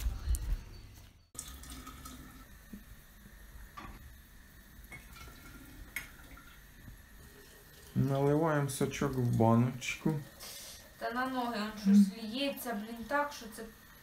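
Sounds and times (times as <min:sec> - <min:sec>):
liquid trickling into jar: 0:01.4 - 0:02.5, 0:07.2 - 0:10.4.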